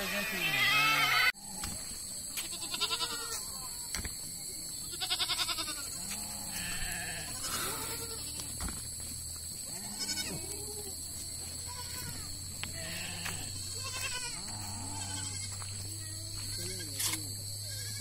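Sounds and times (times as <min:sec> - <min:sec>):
goats bleating: 0:00.0 - 0:01.3, 0:02.4 - 0:03.8, 0:04.9 - 0:08.6, 0:09.7 - 0:17.0, 0:17.6 - 0:18.0.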